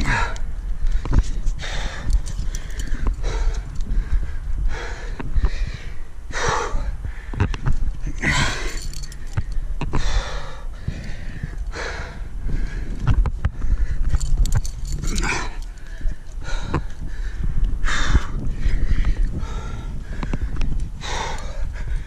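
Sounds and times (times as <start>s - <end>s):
person breathing hard: 0.0s - 22.0s
wind rumble on microphone: 0.0s - 22.0s.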